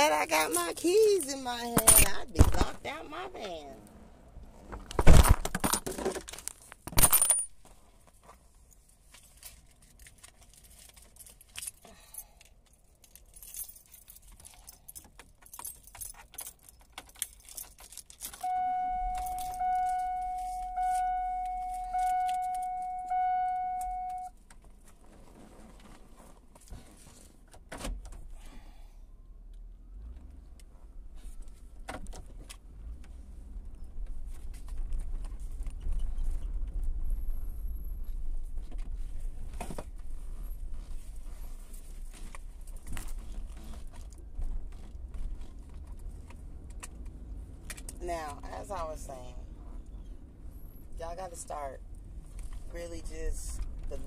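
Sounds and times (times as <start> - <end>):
car keys jingling: 0.0 - 2.8, 6.9 - 7.8, 9.3 - 24.5
dashboard warning chime: 18.4 - 24.4.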